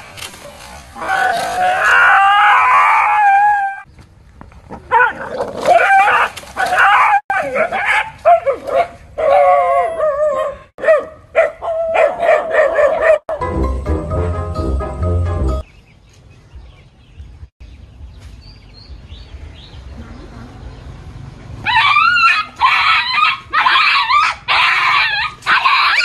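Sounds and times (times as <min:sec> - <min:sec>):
dog howling and barking: 0:01.0 - 0:03.8, 0:04.9 - 0:13.4, 0:21.7 - 0:26.0
music: 0:13.3 - 0:15.6.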